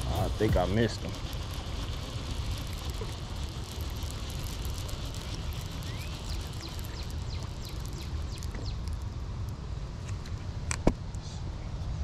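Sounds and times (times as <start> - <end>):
fishing reel whirring and clicking: 0.0 - 10.3
birds chirping: 3.7 - 9.0.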